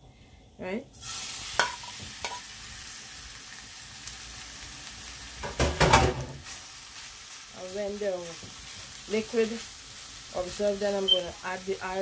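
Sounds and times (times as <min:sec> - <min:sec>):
shrimp sizzling in a pan: 0:00.9 - 0:12.0
clattering in a pan: 0:01.6 - 0:02.4, 0:05.4 - 0:06.4.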